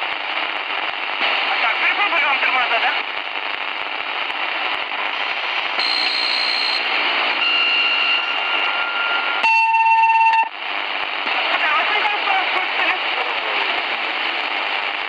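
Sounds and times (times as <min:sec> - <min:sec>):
radio static hiss: 0:00.0 - 0:15.0
loud steady beep tone: 0:05.8 - 0:10.6.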